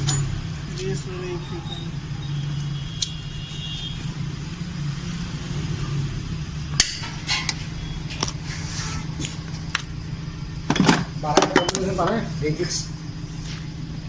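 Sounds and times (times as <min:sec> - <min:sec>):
steady low hum: 0:00.0 - 0:14.0
metallic clicks and knocks: 0:10.7 - 0:12.2.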